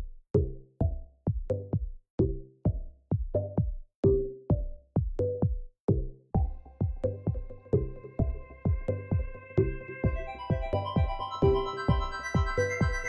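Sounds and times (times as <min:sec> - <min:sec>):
music with struck pitched notes: 0:03.4 - 0:13.0.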